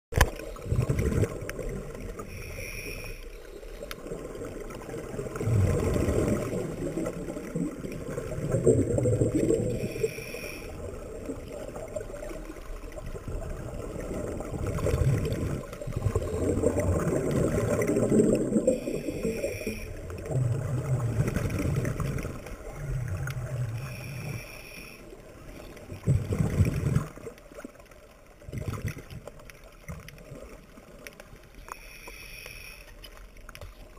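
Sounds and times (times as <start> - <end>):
gurgling exhaled bubbles: 0.2 - 2.7, 4.0 - 24.6, 25.3 - 27.7, 28.4 - 31.1
whistling breaths through regulator: 2.3 - 3.8, 9.7 - 10.8, 18.7 - 20.0, 23.8 - 25.1.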